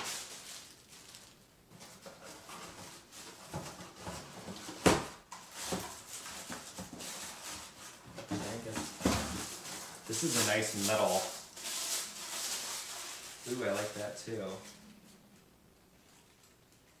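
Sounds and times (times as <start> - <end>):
plastic packaging crinkling: 0.0 - 3.6, 5.4 - 14.6.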